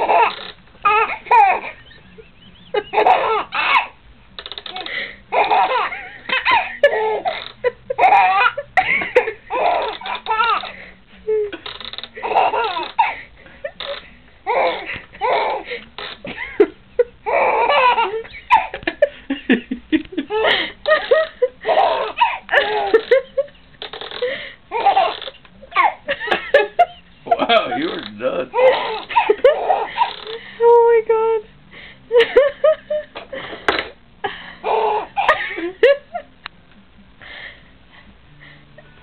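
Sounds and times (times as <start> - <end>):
baby laughing: 0.0 - 4.0, 4.7 - 10.8, 12.2 - 16.6, 17.2 - 19.1, 20.2 - 23.5, 24.7 - 26.6, 27.3 - 30.4, 34.6 - 36.0.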